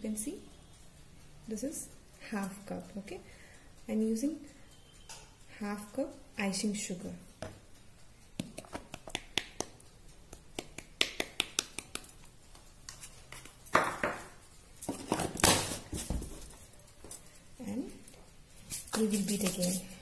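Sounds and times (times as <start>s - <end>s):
handling noises: 13.7s - 17.3s.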